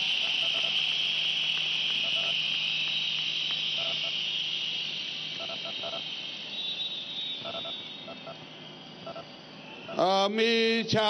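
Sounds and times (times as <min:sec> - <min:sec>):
crowd blowing whistles: 0:00.0 - 0:11.0.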